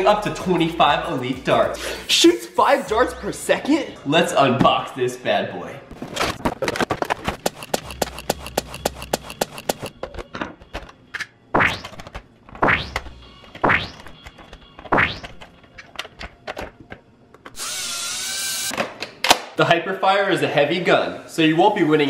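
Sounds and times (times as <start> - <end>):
plastic and cardboard rattling: 5.9 - 11.0
motor whirring: 7.4 - 9.9, 17.6 - 18.7.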